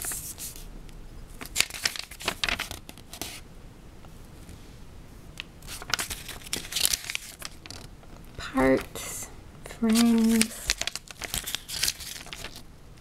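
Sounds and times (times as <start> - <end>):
paper rustling and crinkling: 0.0 - 0.7, 1.3 - 3.4, 5.6 - 9.0, 9.8 - 12.6.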